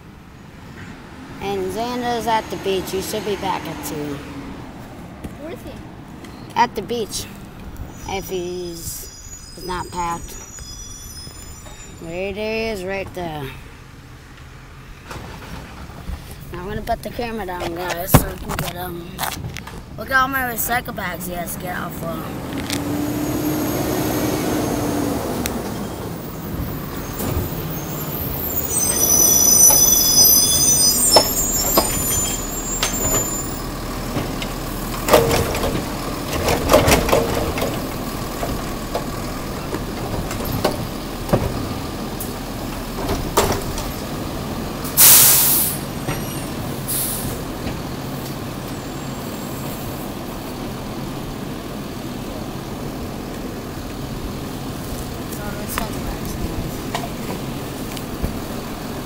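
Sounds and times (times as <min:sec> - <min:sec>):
high brake squeal: 0:07.9 - 0:12.2, 0:23.0 - 0:33.9, 0:45.0 - 0:47.4, 0:48.7 - 0:50.0
garbage truck idling: 0:23.1 - 0:59.0
air brake hiss: 0:45.0 - 0:45.9, 0:46.9 - 0:47.4.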